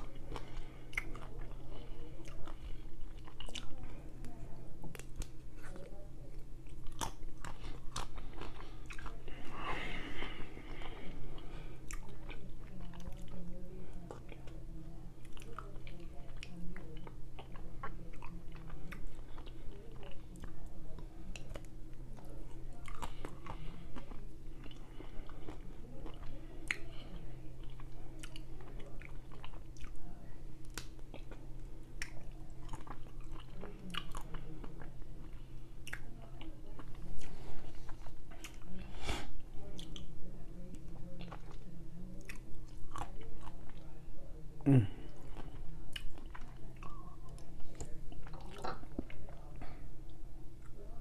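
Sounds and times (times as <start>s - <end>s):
low steady hum: 0.0s - 51.0s
biting and chewing ice cream bar: 6.6s - 9.4s, 45.3s - 49.6s.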